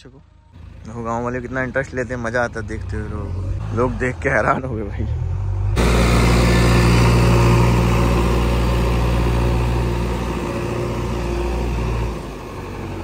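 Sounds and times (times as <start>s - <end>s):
heavy diesel engine running: 5.6s - 13.0s.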